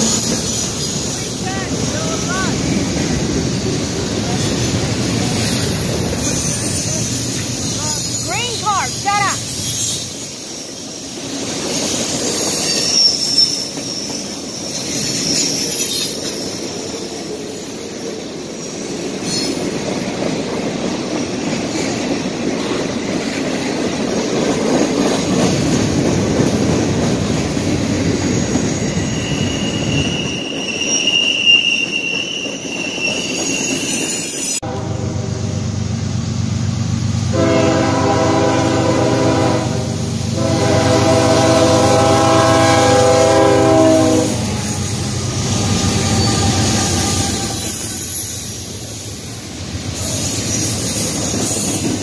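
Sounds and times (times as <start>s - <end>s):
steel wheels rumbling on rail: 0.0s - 52.0s
high-pitched wheel squeal: 6.1s - 8.3s, 12.3s - 16.6s, 28.7s - 34.6s, 45.5s - 48.4s.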